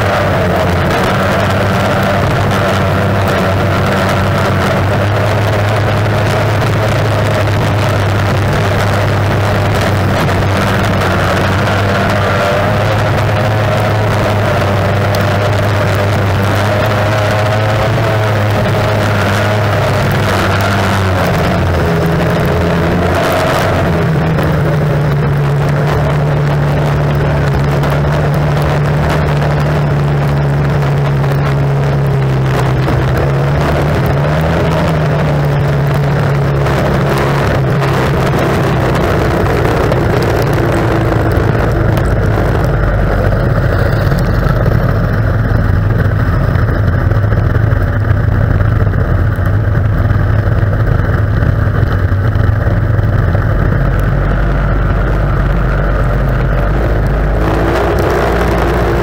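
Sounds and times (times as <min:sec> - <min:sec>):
outboard engine running hard: 0:00.0 - 0:59.0.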